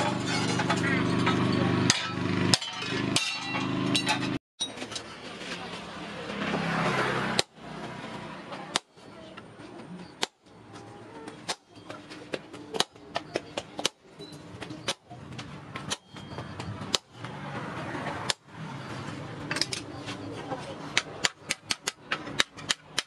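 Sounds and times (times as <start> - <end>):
hammer striking steel on anvil: 0.0 - 4.4.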